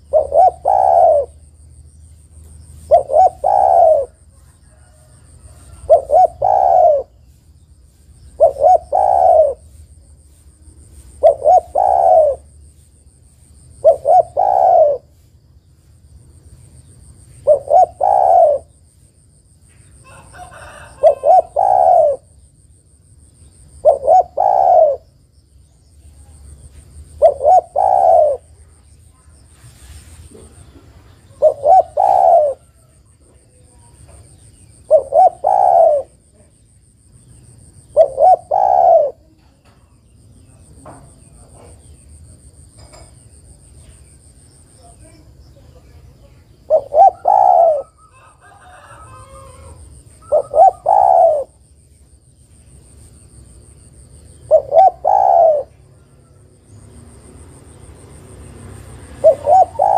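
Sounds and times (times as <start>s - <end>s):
dove cooing: 0.0s - 1.6s, 2.7s - 7.4s, 8.3s - 10.0s, 11.0s - 12.6s, 13.7s - 15.2s, 17.4s - 18.8s, 20.0s - 22.4s, 23.7s - 25.2s, 26.5s - 28.9s, 30.3s - 36.6s, 37.8s - 43.1s, 45.8s - 51.7s, 54.3s - 57.2s, 59.0s - 59.9s.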